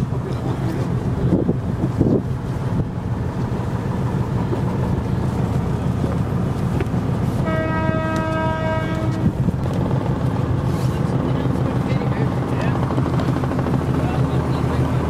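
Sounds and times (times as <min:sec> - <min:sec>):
boat engine rumbling: 0:00.0 - 0:15.0
boat horn: 0:07.3 - 0:09.5.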